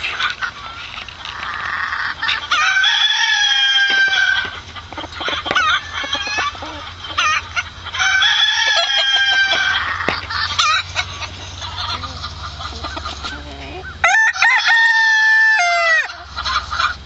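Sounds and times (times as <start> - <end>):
chicken clucks and calls: 0.0 - 17.0
rooster crowing: 1.7 - 4.6, 5.2 - 12.2, 14.0 - 16.9.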